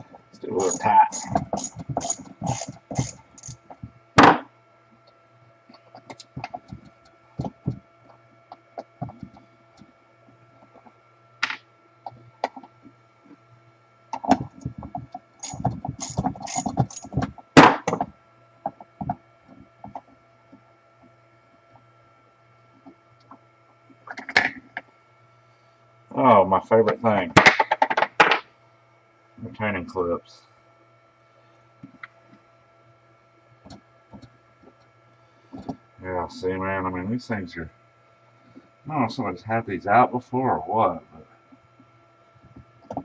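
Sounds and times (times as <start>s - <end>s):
steady low hum: 0.0s - 43.0s
metal tools clicking and clinking: 0.6s - 3.6s, 15.4s - 17.2s.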